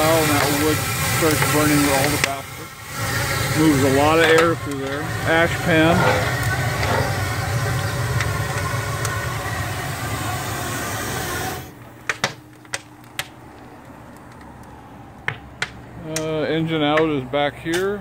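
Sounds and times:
steam blower rushing: 0.0s - 11.9s.

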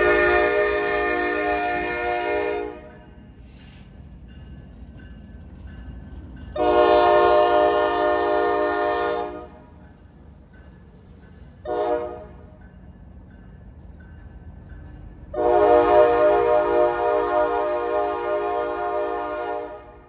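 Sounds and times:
locomotive air horn: 0.0s - 3.0s, 6.6s - 9.7s, 11.6s - 12.4s, 15.3s - 20.0s
locomotive rumble: 0.0s - 20.0s.

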